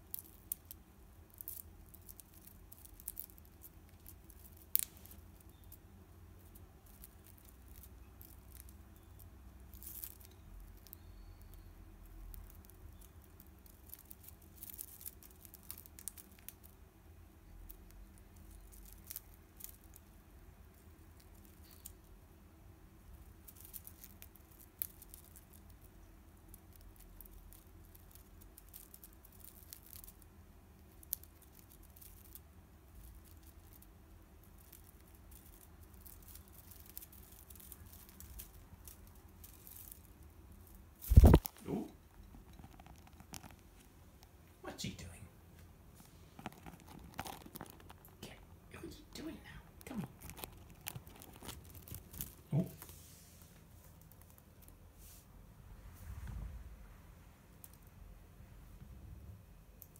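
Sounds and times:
bird nibbling dried grass: 0.1 - 5.8, 6.5 - 11.6, 12.2 - 16.8, 17.7 - 20.1, 23.4 - 30.2, 30.8 - 43.9, 46.0 - 48.2, 49.8 - 55.2.

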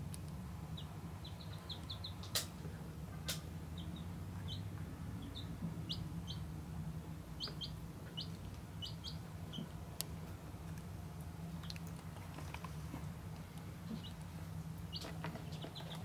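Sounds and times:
baby bird peeping: 0.6 - 2.5, 3.7 - 6.6, 7.3 - 9.8, 13.9 - 14.2, 14.8 - 16.0.

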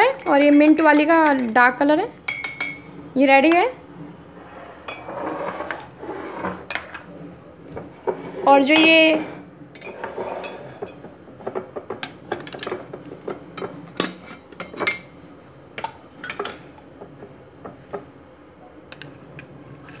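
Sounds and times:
glass jar clinking on stone: 2.3 - 2.9.

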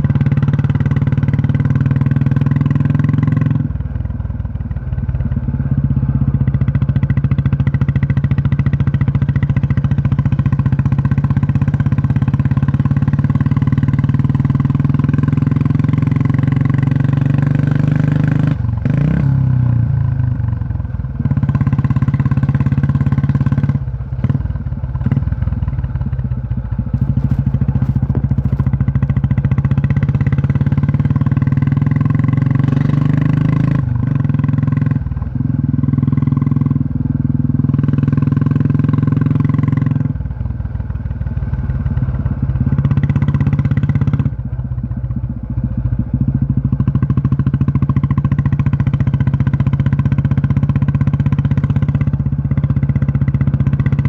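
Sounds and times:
motorcycle engine thumping: 24.1 - 30.8.

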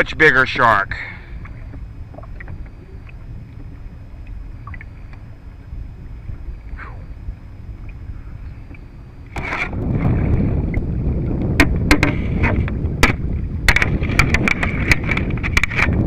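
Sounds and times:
camera handling rumble: 9.3 - 16.0
sharp knocks and clicks: 11.6 - 16.0.

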